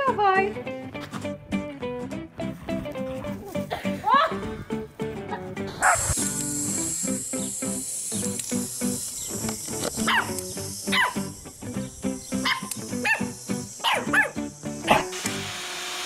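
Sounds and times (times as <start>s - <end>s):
puppies yipping and barking: 5.8s - 8.3s, 9.2s - 15.1s.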